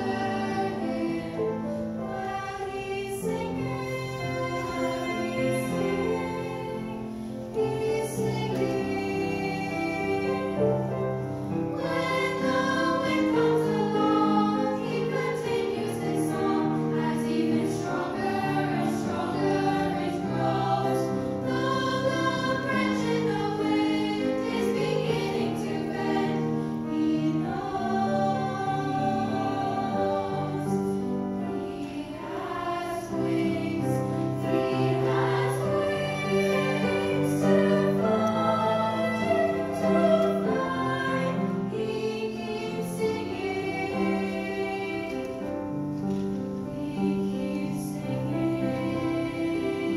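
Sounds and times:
children's choir singing: 0.0s - 49.9s.

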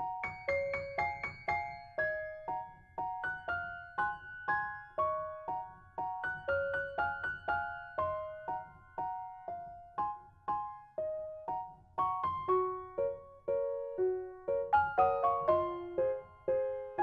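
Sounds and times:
simple piano melody: 0.0s - 17.0s.

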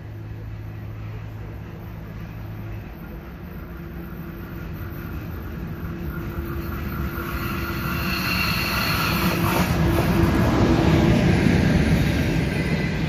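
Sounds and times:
electric train approaching: 0.0s - 13.0s
steady whine: 0.0s - 13.0s
train wheel clack: 3.7s - 13.0s.

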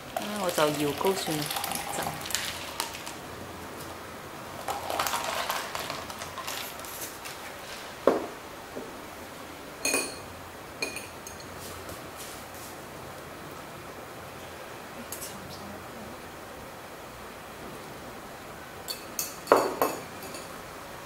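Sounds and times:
knock on counter: 8.1s - 8.3s
metal spoon clinking glass bowl: 9.8s - 11.5s, 18.9s - 20.5s.

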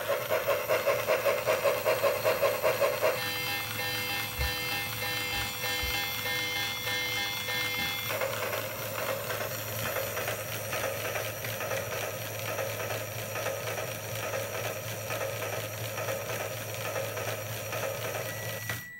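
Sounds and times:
toy train whistle: 0.0s - 8.4s
small motor whirring and ticking: 0.0s - 18.9s.

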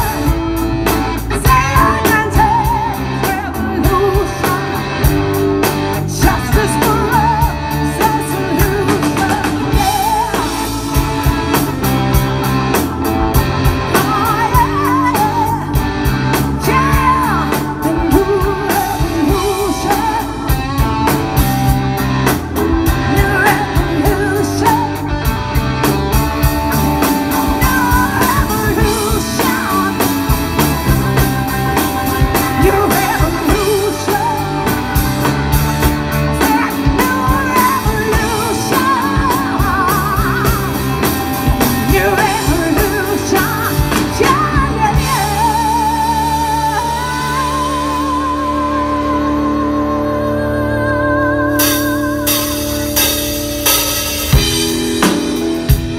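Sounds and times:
blues-rock band playing: 0.0s - 55.9s
woman singing: 1.2s - 5.2s, 5.9s - 11.8s, 13.8s - 20.8s, 22.8s - 25.2s, 27.2s - 31.3s, 32.2s - 35.0s, 36.2s - 53.0s.

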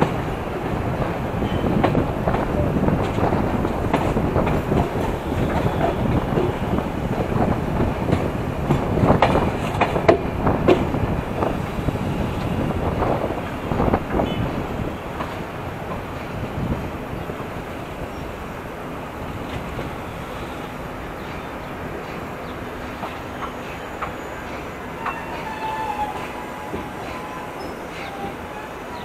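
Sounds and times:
train wheels clattering over rails: 0.0s - 18.2s, 19.2s - 29.0s.

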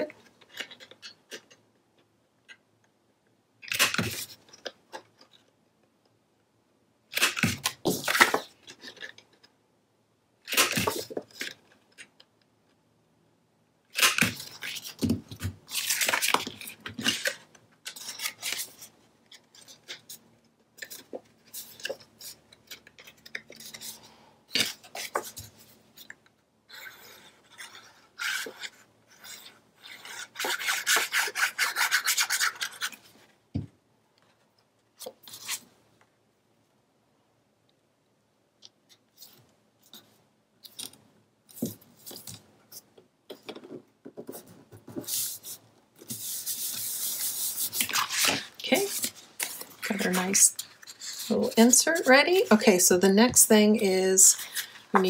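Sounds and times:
paper rustling and scraping: 14.0s - 20.2s, 26.7s - 33.2s, 39.2s - 52.6s.

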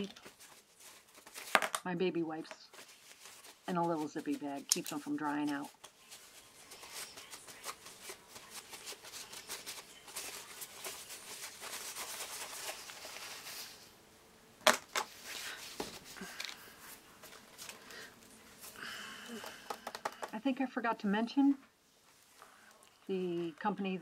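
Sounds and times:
plastic bag crinkling: 2.7s - 13.9s.

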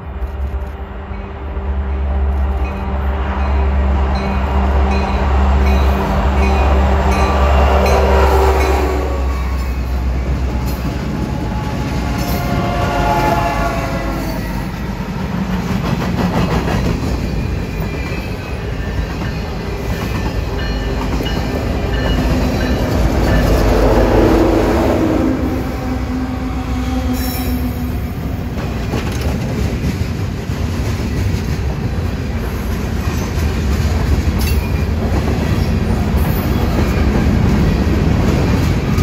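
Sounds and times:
train horn: 0.0s - 15.1s, 21.8s - 28.6s
locomotive engine drone: 0.0s - 30.6s
train wheels clickety-clack: 9.5s - 13.0s, 14.2s - 24.3s, 28.2s - 39.0s.

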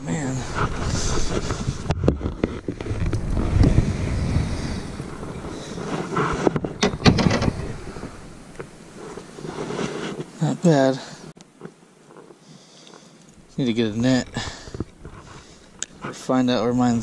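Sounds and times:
wind rumbling on microphone: 0.0s - 10.1s.

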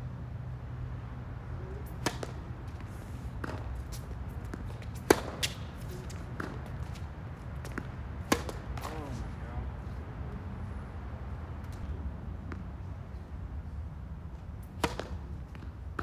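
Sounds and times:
steady low hum: 0.0s - 16.0s
tennis ball pops off rackets: 1.9s - 2.8s, 3.4s - 5.6s, 7.6s - 9.0s, 14.8s - 15.7s.

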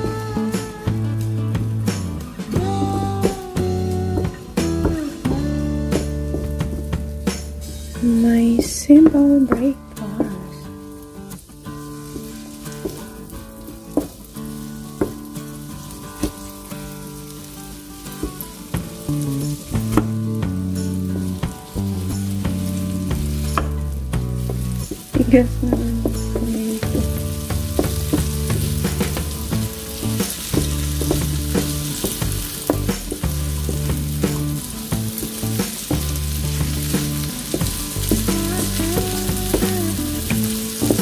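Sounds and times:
tomatoes sizzling in hot oil: 0.0s - 41.0s
wooden spatula scraping pan: 11.7s - 17.4s.

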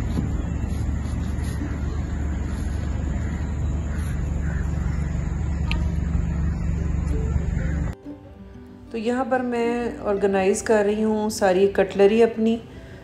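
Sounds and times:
steady low rumble: 0.0s - 8.0s.

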